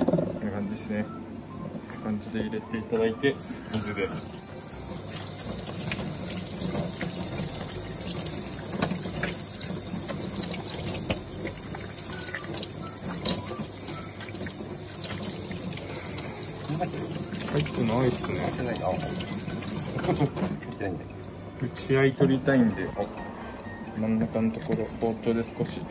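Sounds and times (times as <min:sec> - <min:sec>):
tap water running into sink: 0:03.4 - 0:21.5.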